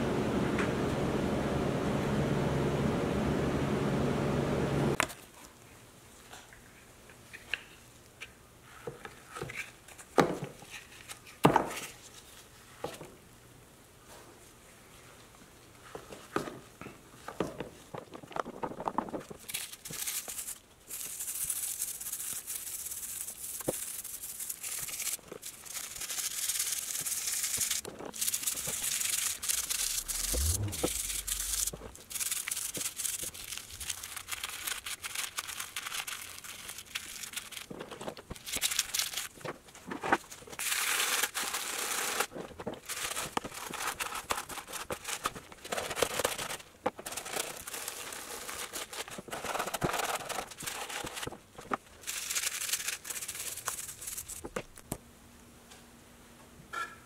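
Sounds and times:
dull low thud: 30.2 - 32.0.

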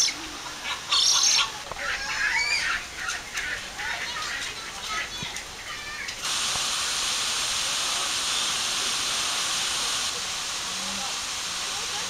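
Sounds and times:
birds chirping: 0.0 - 6.2
loud steady hiss: 0.0 - 12.0.

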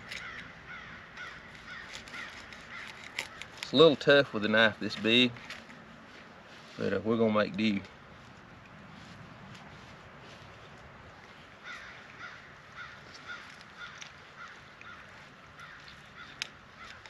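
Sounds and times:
bird calling: 0.0 - 4.4, 10.7 - 17.0.

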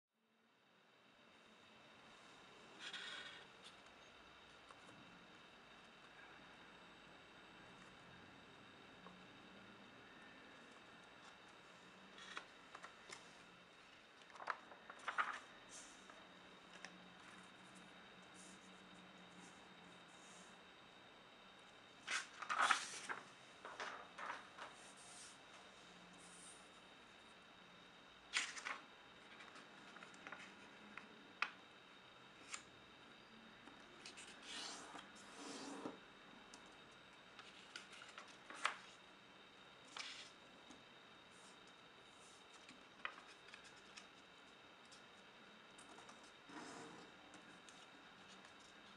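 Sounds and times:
faint steady hum: 0.2 - 48.9
paper being folded and creased: 12.2 - 13.2, 14.2 - 17.8, 22.0 - 25.4, 28.3 - 31.1, 34.0 - 35.6, 37.4 - 39.0, 39.8 - 40.4, 42.2 - 45.0
paper crinkling and tapping: 14.2 - 15.4, 22.1 - 24.8, 42.5 - 44.2
paper rustling swipe: 22.1 - 25.4.

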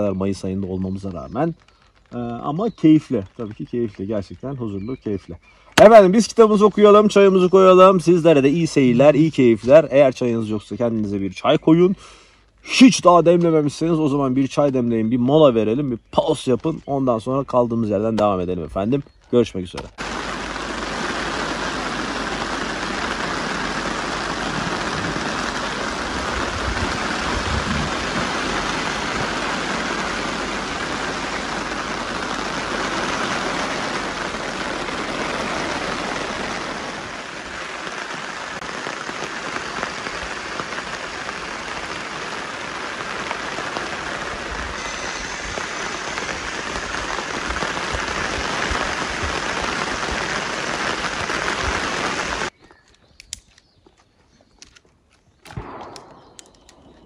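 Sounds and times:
rain pattering on a tarp: 0.0 - 52.6.

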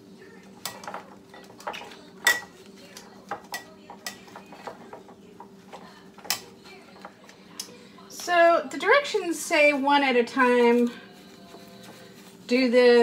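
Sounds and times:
tongs clinking against glass bowl: 0.6 - 2.6.

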